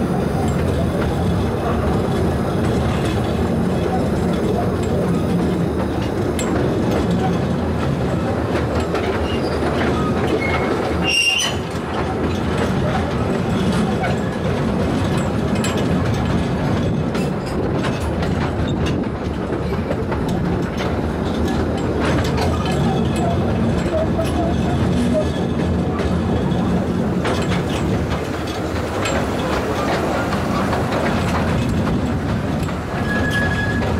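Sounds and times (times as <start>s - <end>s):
train running along track: 0.0s - 33.9s
high squeal: 33.0s - 33.9s.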